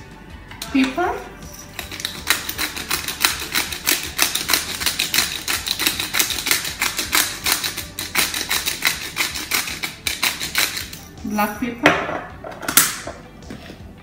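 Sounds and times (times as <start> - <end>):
pepper mill grinding: 1.4 - 11.2.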